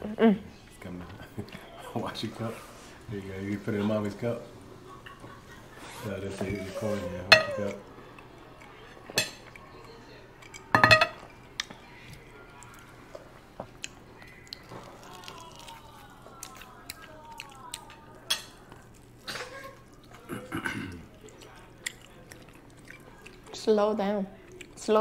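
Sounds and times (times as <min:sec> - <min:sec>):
chewing: 0:04.9 - 0:25.0
dishes and cutlery clinking: 0:06.0 - 0:07.9, 0:08.6 - 0:11.8, 0:17.9 - 0:23.0.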